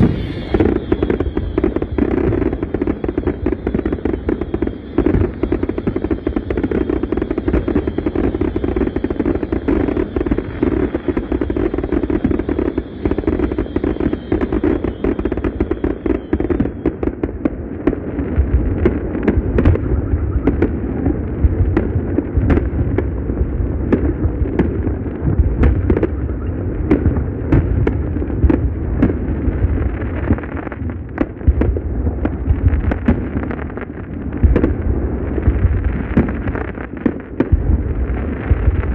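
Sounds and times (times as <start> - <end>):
firework shells bursting: 0.0 - 8.7
fireworks crackling: 0.0 - 38.9.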